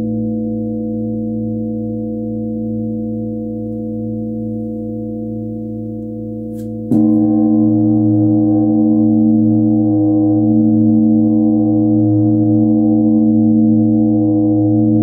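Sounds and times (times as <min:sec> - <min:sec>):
mallet striking bell: 0:06.0 - 0:11.1.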